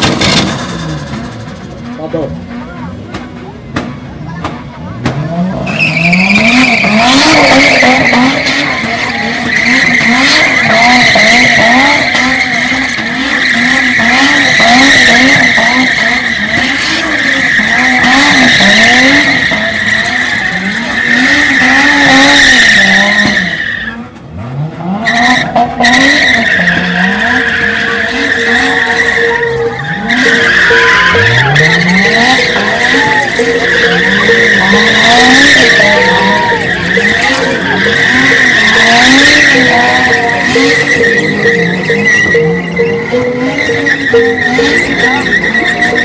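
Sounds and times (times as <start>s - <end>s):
car engine revving: 0.0s - 46.0s
tyres squealing: 5.2s - 24.2s, 25.0s - 46.0s.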